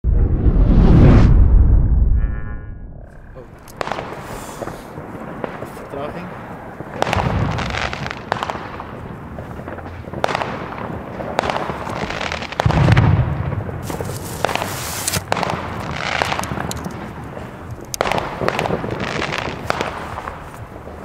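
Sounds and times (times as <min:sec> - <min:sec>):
deep firework boom: 0:00.0 - 0:05.6, 0:06.4 - 0:11.7, 0:12.6 - 0:14.6
fireworks bangs and crackling: 0:03.4 - 0:21.0
sharp hiss: 0:04.1 - 0:05.0, 0:13.8 - 0:15.3.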